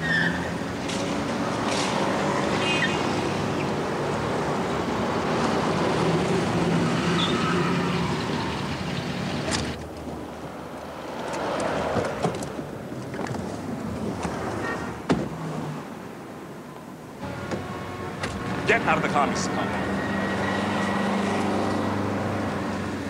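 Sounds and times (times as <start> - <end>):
cars passing on street: 0.0 - 23.0.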